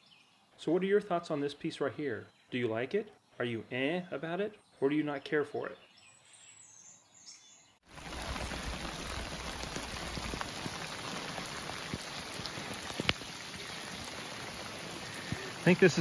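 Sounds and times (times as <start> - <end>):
raindrop hits: 7.9 - 16.0
steady rain: 7.9 - 16.0.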